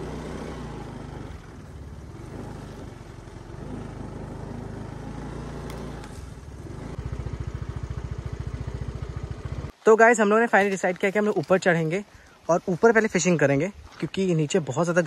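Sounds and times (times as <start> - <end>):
motorbike engine running: 0.0 - 9.7.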